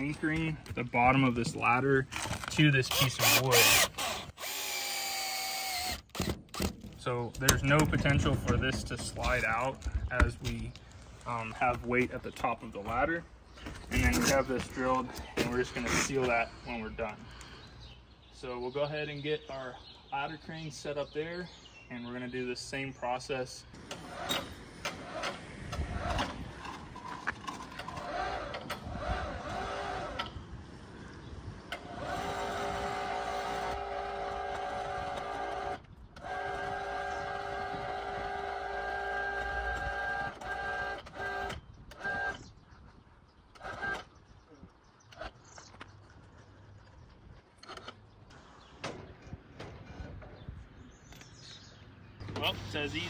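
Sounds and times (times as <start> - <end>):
metal knocks and clanks: 6.6 - 9.6
electric hoist motor running: 27.9 - 30.3, 31.7 - 42.4.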